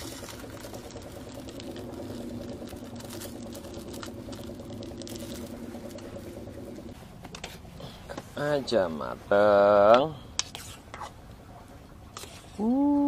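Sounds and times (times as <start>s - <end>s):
steady motor drone: 0.0s - 10.4s.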